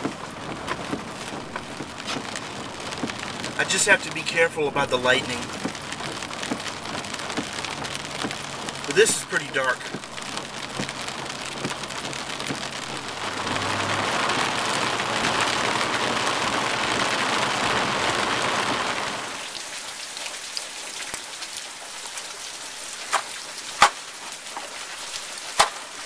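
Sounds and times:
heavy rain: 0:00.0 - 0:26.0.

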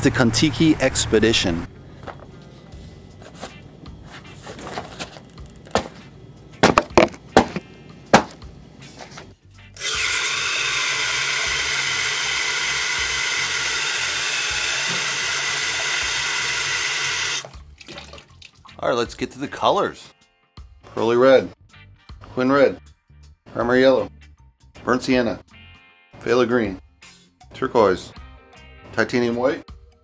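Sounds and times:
rubber clog knocks and scuffs: 0:03.2 - 0:09.3
faucet running into a sink: 0:09.8 - 0:18.8.

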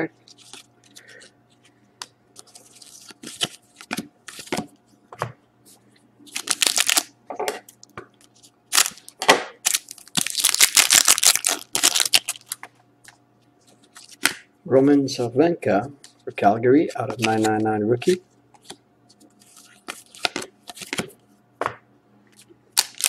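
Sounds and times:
card wrapper crinkling and tearing: 0:02.4 - 0:04.6, 0:06.3 - 0:07.1, 0:08.7 - 0:12.6, 0:17.1 - 0:18.2, 0:22.8 - 0:23.0
trading cards being shuffled: 0:17.0 - 0:21.1.

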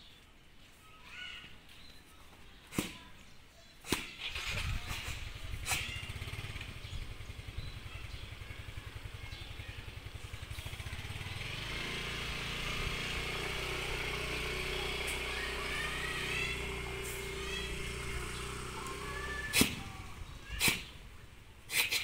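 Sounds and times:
vehicle engine rumbling: 0:04.1 - 0:22.0.

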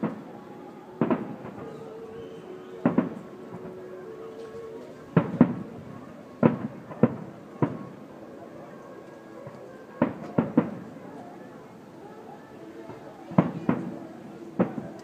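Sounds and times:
fireworks bursting with echo: 0:00.0 - 0:15.0.

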